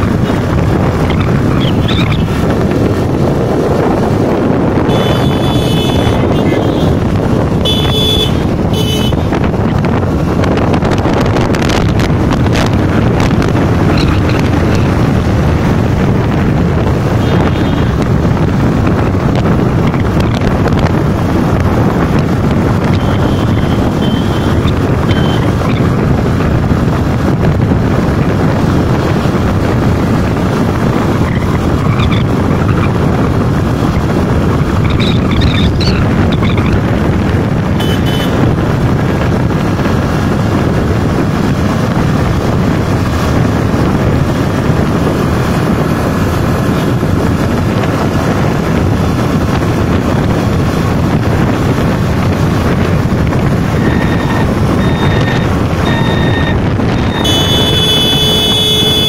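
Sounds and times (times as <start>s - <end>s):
vehicle driving at speed: 0.0s - 59.0s
wind rushing over microphone: 0.0s - 59.0s
short high beeps: 53.8s - 59.0s.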